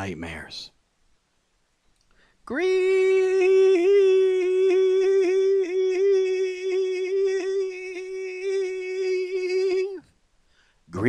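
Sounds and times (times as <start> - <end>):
man singing a long high note: 2.5 - 10.1.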